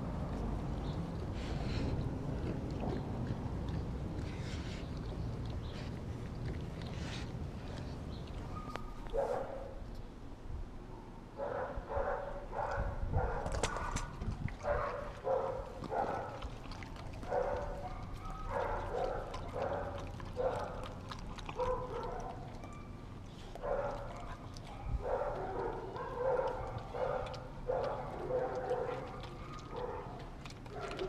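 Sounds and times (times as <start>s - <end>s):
dog barking and yipping: 14.6s - 16.4s, 17.3s - 20.9s, 21.5s - 23.0s, 23.6s - 31.0s.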